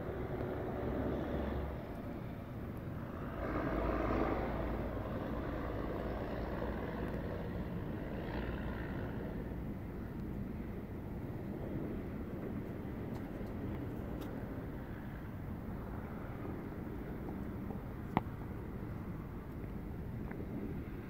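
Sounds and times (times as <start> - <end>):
distant diesel locomotive engine: 0.0 - 11.2.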